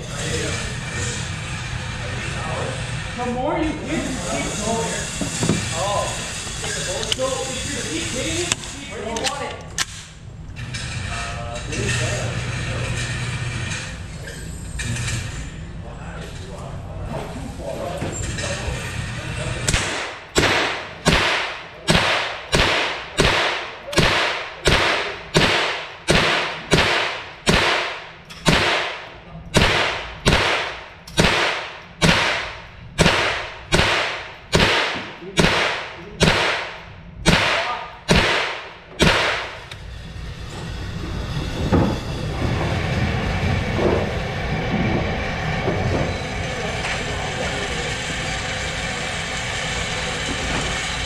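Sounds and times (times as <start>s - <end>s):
rifle shots echoing indoors: 19.7s - 39.7s.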